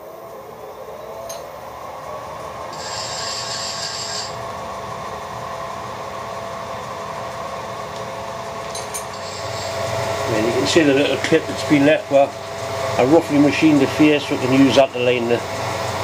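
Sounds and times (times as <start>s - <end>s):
milling machine humming: 0.0s - 16.0s
vise scraping and rasping: 2.8s - 4.4s.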